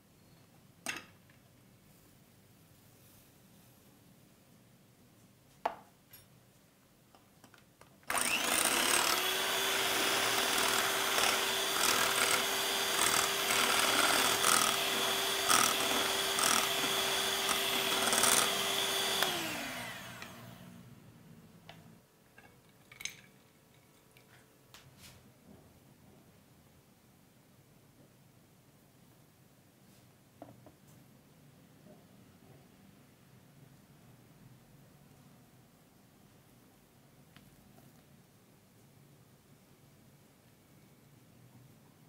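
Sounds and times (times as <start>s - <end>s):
electric hand mixer whining: 8.1s - 20.9s.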